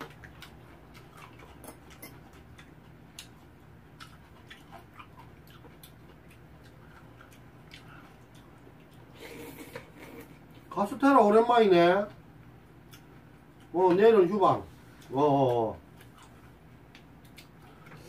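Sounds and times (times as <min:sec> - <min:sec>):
chewing: 0:00.0 - 0:10.7, 0:14.9 - 0:18.0
low steady hum: 0:00.0 - 0:18.0.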